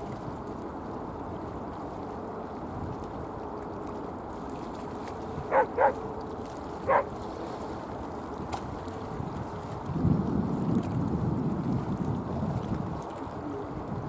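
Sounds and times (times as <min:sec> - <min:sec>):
dog barking: 0:05.5 - 0:06.0, 0:06.9 - 0:07.1.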